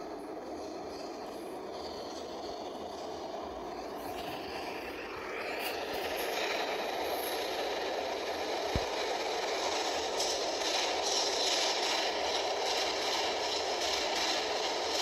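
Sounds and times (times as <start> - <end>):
subway train rumble: 0.0 - 15.0.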